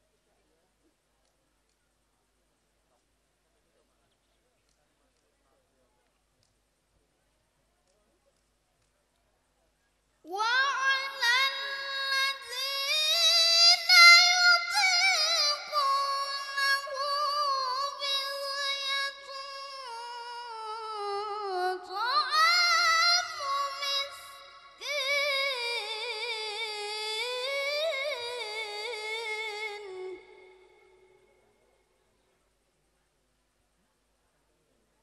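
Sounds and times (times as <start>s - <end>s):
boy chanting into microphone: 10.3s - 31.0s.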